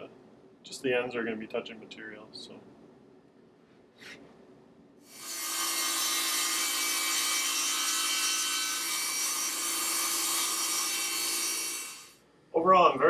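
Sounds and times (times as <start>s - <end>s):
table saw ripping board: 5.1s - 12.1s.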